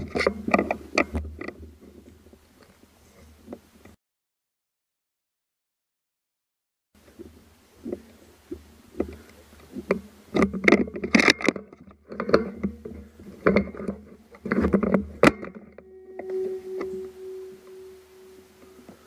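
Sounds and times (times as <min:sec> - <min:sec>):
steady ringing tone: 0:15.4 - 0:19.0
low rumble: 0:15.7 - 0:19.0.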